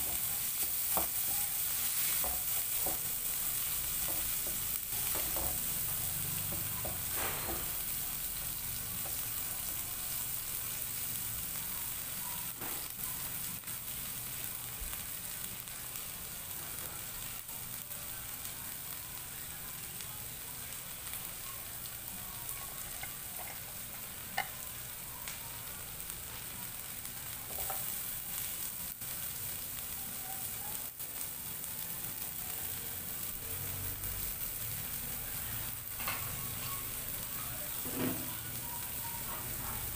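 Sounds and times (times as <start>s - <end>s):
food sizzling in hot oil: 0.0s - 39.9s
spatula tapping pan: 2.1s - 3.1s.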